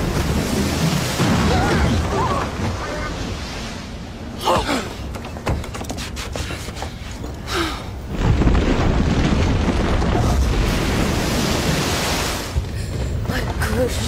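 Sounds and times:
rumble of breaking falling rock: 8.1 - 14.0.

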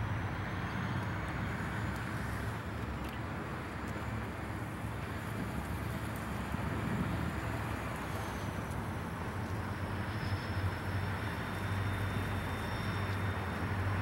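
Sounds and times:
distant diesel locomotive rumble: 0.0 - 14.0
wind noise: 0.0 - 14.0.

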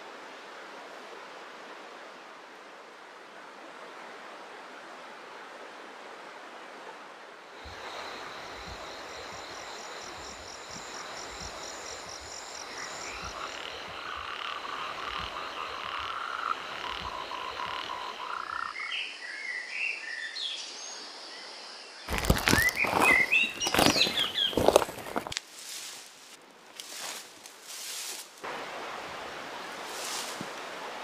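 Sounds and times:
frogs croaking: 7.6 - 20.3, 21.0 - 25.3
bird chirps: 22.4 - 25.1.

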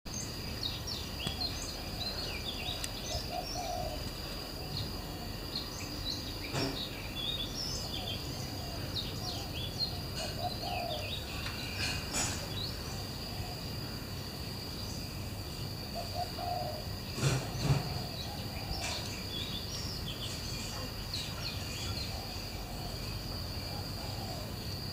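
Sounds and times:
high insect drone: 0.1 - 24.9
small birds chirping: 0.1 - 24.9
dove cooing: 1.3 - 5.5, 7.8 - 13.7, 15.9 - 19.1, 21.8 - 24.7.

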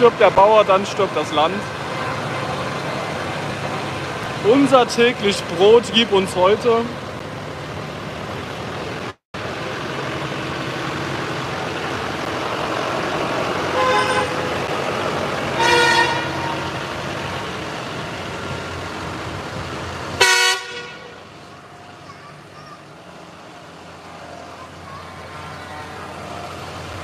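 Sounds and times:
tractors driving past: 0.0 - 27.0
vehicle horns tooting: 1.8 - 2.9, 13.7 - 14.6, 15.5 - 16.8, 20.2 - 21.3, 24.4 - 26.6.

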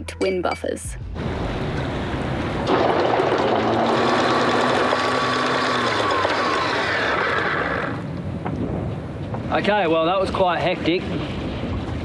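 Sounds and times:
motor running with a whine: 3.4 - 8.0.

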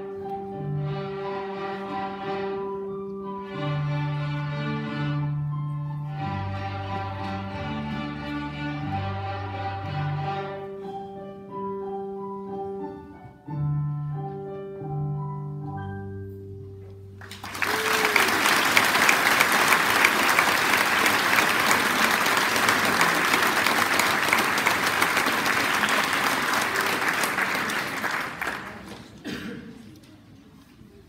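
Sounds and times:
string orchestra playing: 0.0 - 11.2
audience applauding: 17.2 - 29.3.

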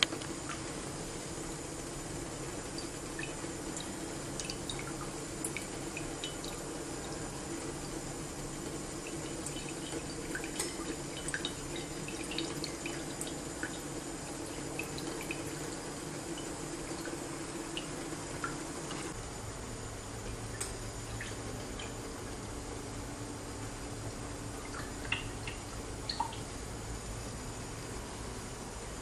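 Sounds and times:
steady low hum: 0.0 - 29.0
liquid dripping into a glass jug: 2.7 - 8.0, 8.6 - 19.2, 20.2 - 22.0, 24.6 - 26.6.

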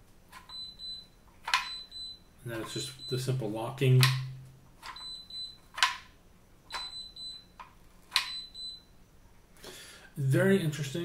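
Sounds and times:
clicks and knocks of handling: 1.3 - 1.8, 4.0 - 5.1, 5.7 - 6.1.

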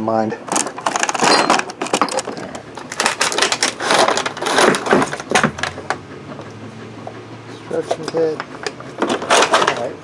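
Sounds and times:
plastic and cardboard crinkling: 0.5 - 6.0.

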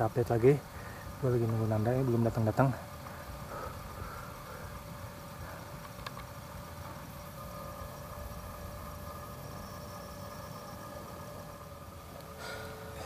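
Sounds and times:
faint steady hum: 0.0 - 13.0
hiss: 3.0 - 6.0, 12.2 - 13.0.

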